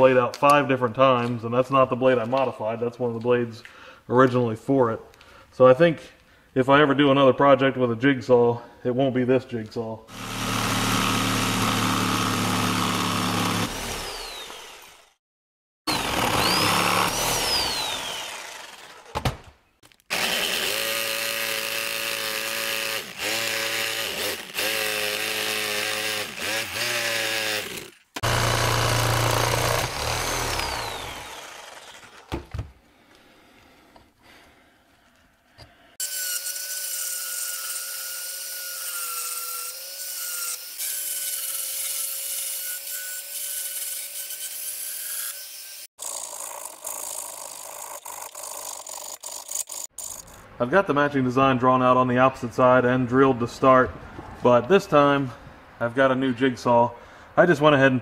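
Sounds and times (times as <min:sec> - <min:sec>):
power tool motor whine: 0:10.1 - 0:15.1, 0:15.9 - 0:19.1, 0:20.1 - 0:32.3.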